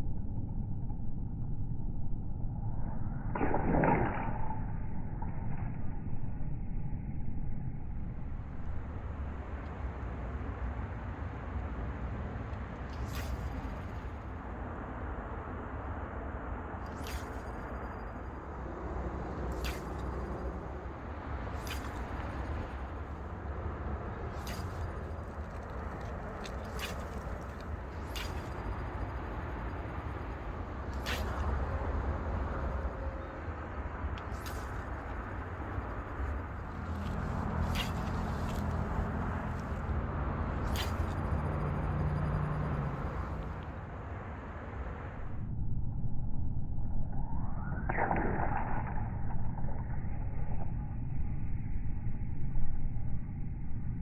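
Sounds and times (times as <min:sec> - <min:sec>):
low outdoor rumble: 0:04.2 - 0:47.9
fishing rod swishing: 0:12.9 - 0:14.2, 0:16.9 - 0:17.8, 0:19.5 - 0:23.4, 0:24.1 - 0:30.0, 0:30.9 - 0:33.0, 0:34.2 - 0:39.9, 0:40.6 - 0:43.6.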